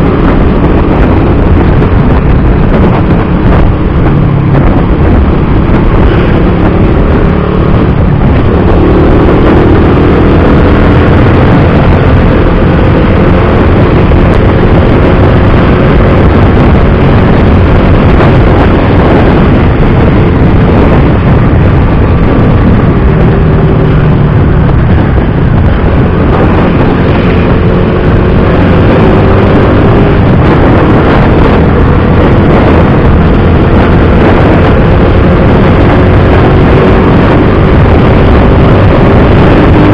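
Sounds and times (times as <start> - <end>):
motorcycle engine running: 0.0 - 39.9
wind noise on microphone: 0.0 - 39.9.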